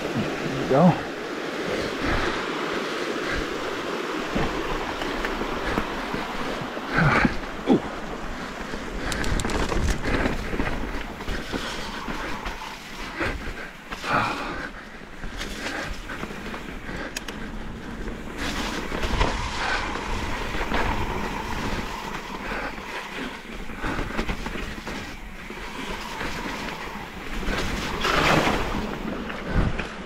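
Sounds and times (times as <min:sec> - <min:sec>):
bike tyre noise on dirt: 0:00.0 - 0:30.0
bike rattling over roots: 0:01.6 - 0:30.0.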